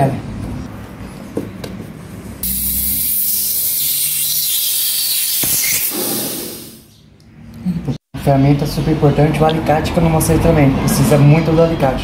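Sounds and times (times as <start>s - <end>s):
refrigerant gas hissing: 2.4s - 6.9s.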